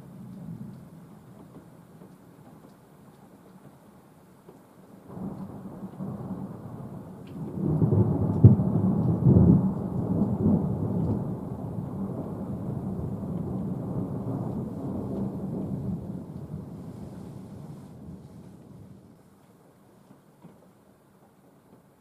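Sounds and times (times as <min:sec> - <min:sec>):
thunder rumbling: 0:05.1 - 0:19.2
sharp thunder crack: 0:07.5 - 0:19.0.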